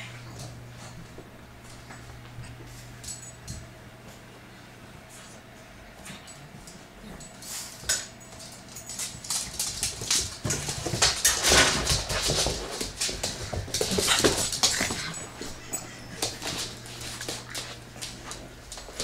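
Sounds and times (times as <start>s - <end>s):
dogs scuffling: 5.1s - 19.0s.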